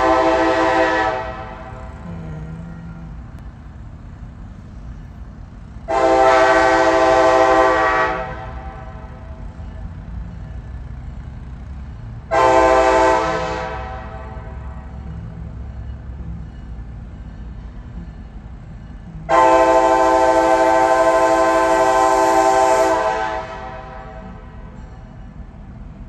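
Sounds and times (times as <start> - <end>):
locomotive air horn chord: 0.0 - 3.4, 5.9 - 9.5, 12.2 - 15.6, 19.0 - 24.8
low steady rumble: 0.0 - 24.7.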